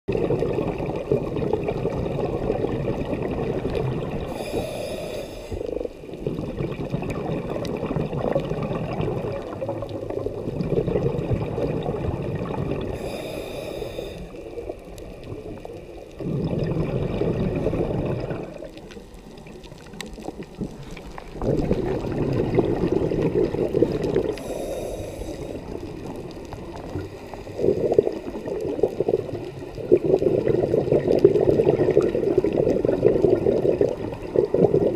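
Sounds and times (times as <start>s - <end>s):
exhaled bubbles rushing: 0.1s - 4.7s, 5.5s - 13.2s, 14.2s - 34.9s
regulator hissing inhales: 4.3s - 5.9s, 13.0s - 14.5s, 24.3s - 25.8s.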